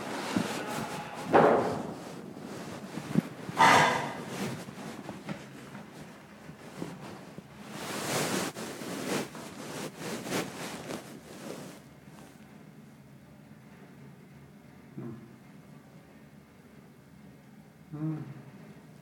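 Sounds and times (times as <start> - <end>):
fabric rustling on microphone: 0.0 - 12.4.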